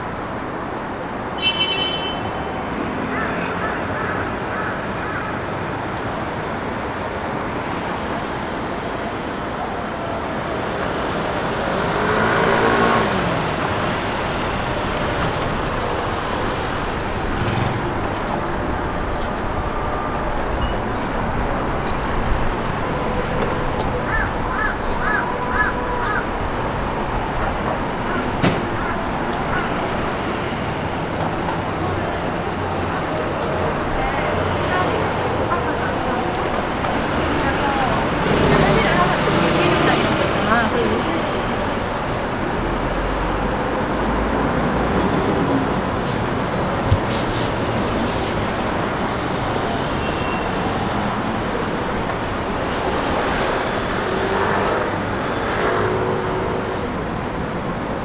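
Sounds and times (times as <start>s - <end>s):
road traffic noise: 0.0s - 58.0s.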